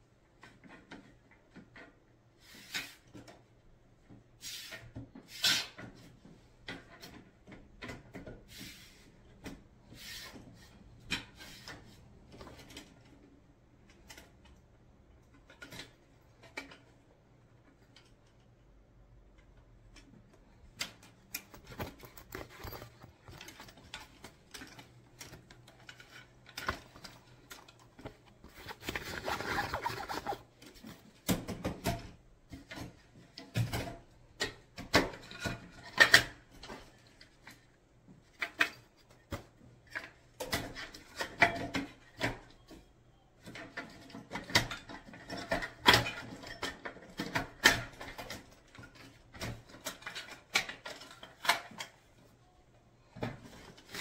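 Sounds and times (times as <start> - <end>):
fabric rustling: 21.4 - 30.5.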